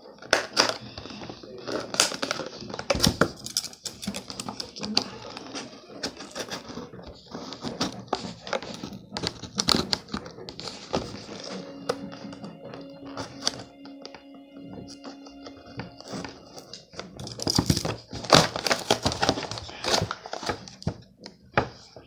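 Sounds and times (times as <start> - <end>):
scissors snipping packaging: 0.2 - 12.4, 16.2 - 21.0
plastic packaging crinkling: 16.0 - 21.0.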